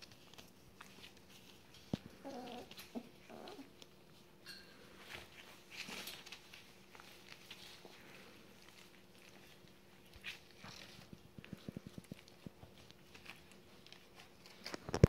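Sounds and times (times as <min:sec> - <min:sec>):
puppies whimpering: 0:02.0 - 0:03.8.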